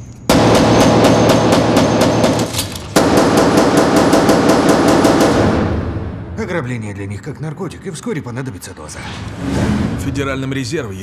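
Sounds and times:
rapid pistol fire: 0:00.3 - 0:06.2.

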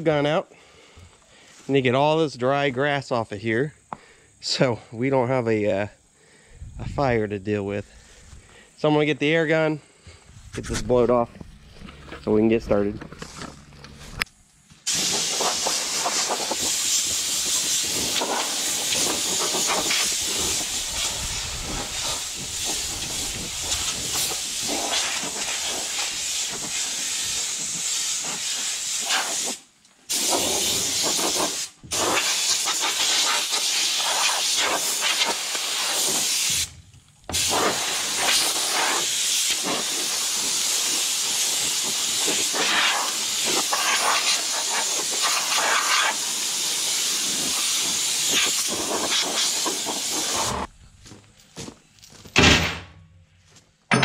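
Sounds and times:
air blow gun hissing: 0:14.8 - 0:50.7.

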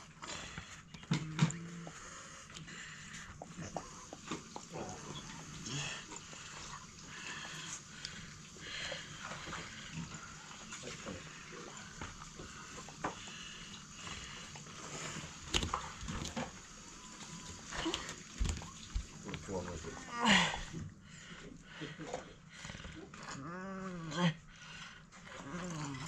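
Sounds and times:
dog chewing: 0:11.2 - 0:19.9.

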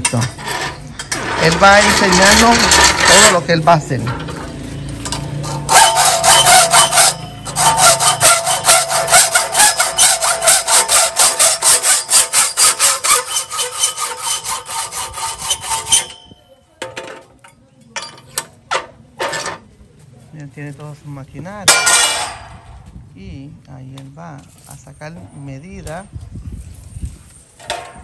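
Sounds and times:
hand saw cutting: 0:00.0 - 0:03.6, 0:05.2 - 0:16.3.

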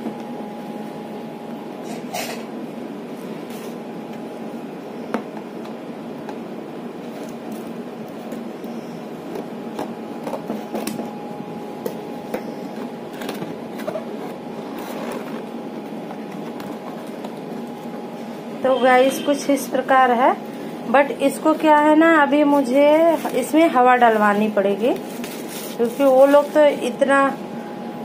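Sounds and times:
room hum: 0:00.0 - 0:28.0
card scraping and rustling: 0:12.4 - 0:15.5, 0:24.1 - 0:26.7.

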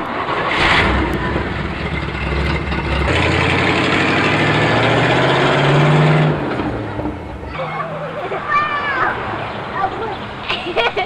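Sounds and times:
truck engine revving up: 0:00.0 - 0:08.1.

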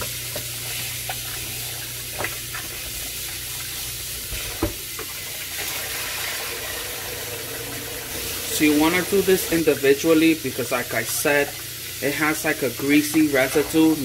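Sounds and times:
faucet running into bowl of water: 0:00.3 - 0:14.0.

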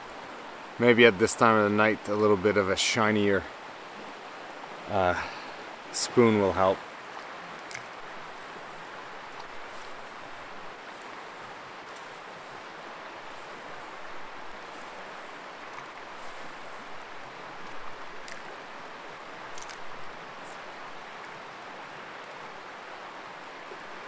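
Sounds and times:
rushing creek water: 0:00.0 - 0:24.0
faint sharp clicks: 0:07.1 - 0:08.0, 0:17.6 - 0:18.5, 0:19.5 - 0:20.6.

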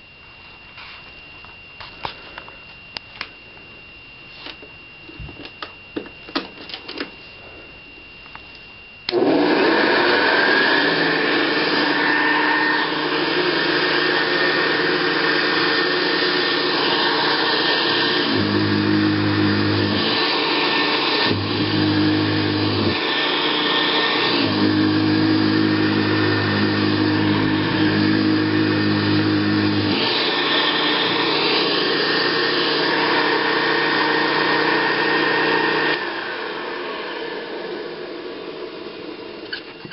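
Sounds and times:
vacuum cleaner motor whine: 0:00.0 - 0:39.9.

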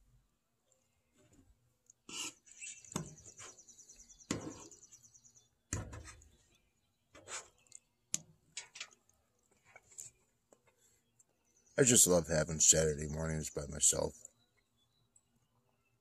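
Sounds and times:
songbird trilling: 0:02.1 - 0:05.5.

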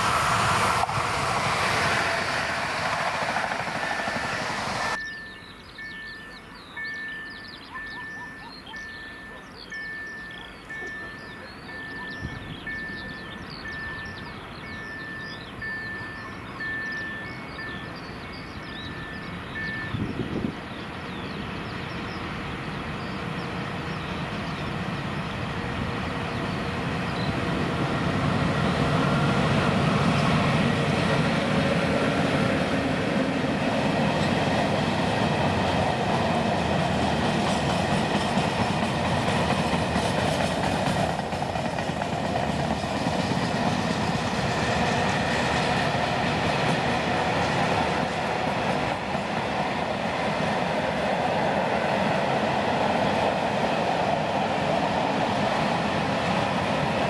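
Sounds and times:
freight train rumble: 0:00.0 - 0:57.0
wheels clicking over rail joints: 0:34.3 - 0:50.7.

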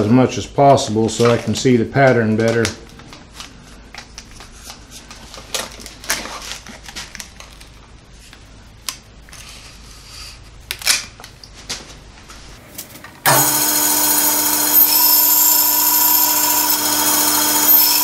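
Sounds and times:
packing tape rustling: 0:02.4 - 0:09.7.

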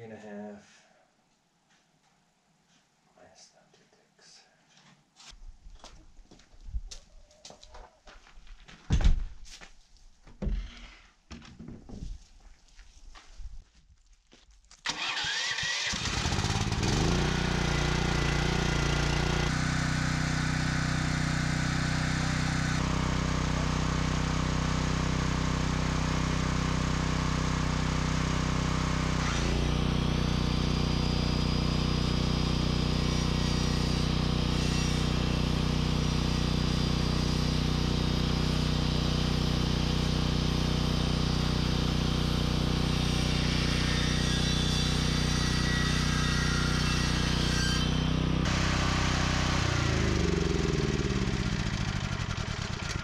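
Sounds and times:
electric sander on wood: 0:16.4 - 0:53.0.

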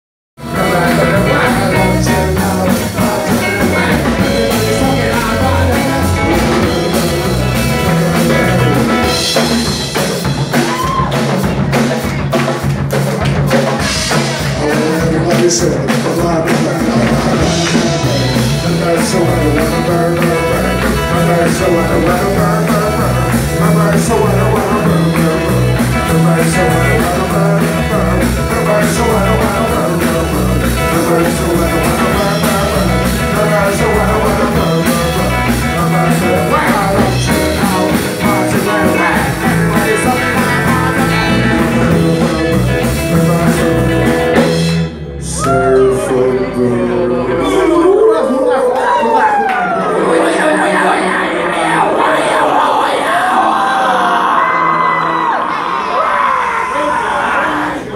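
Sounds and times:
rock band playing surf rock: 0:00.4 - 0:47.1.

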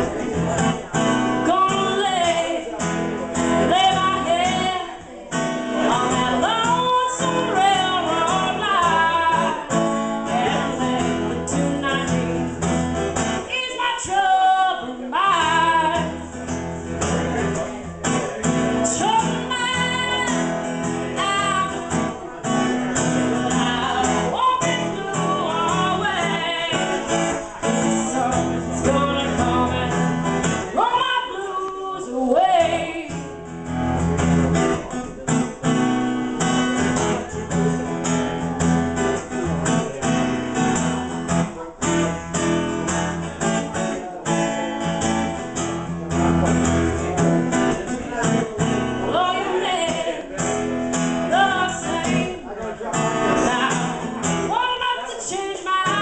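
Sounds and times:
acoustic guitar strumming: 0:00.0 - 0:56.0
woman singing: 0:01.4 - 0:16.3, 0:18.8 - 0:33.4, 0:49.0 - 0:50.3, 0:51.2 - 0:56.0.

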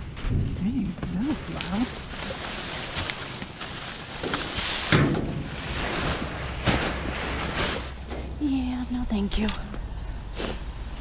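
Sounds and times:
wind rumbling on microphone: 0:00.0 - 0:03.6
plastic bags rustling: 0:00.0 - 0:08.1.

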